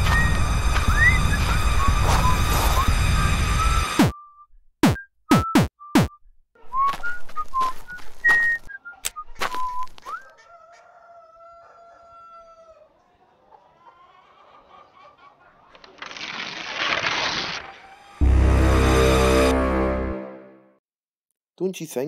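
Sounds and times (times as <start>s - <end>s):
person whistling: 0.0s - 10.3s.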